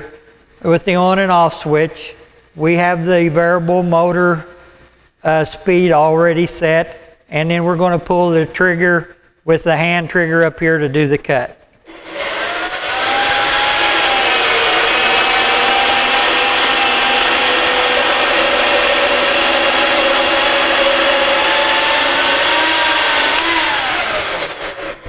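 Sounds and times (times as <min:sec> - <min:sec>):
bandsaw cutting steel bar: 0:11.9 - 0:25.0.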